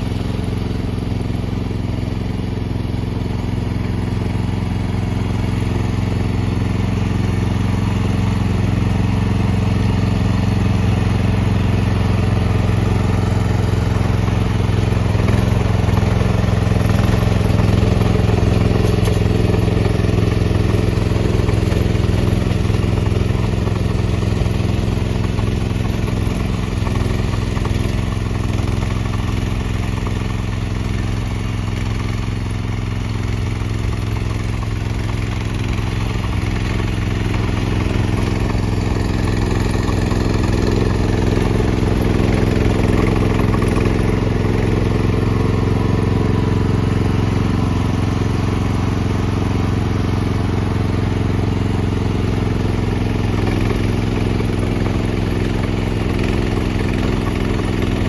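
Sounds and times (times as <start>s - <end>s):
snowblower engine running: 0.0s - 58.0s.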